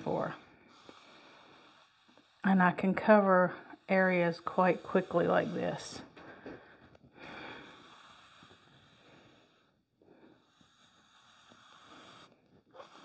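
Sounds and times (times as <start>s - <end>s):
foam roller rubbing on wood: 2.0s - 6.0s.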